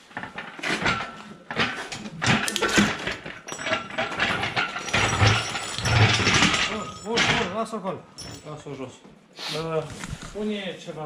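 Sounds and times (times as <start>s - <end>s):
metallic clanks and knocks: 0.0s - 8.7s
chain rattling: 0.7s - 8.7s.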